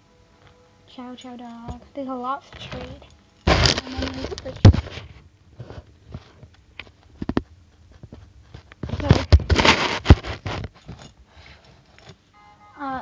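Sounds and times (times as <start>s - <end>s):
camera rustling: 2.5s - 12.2s.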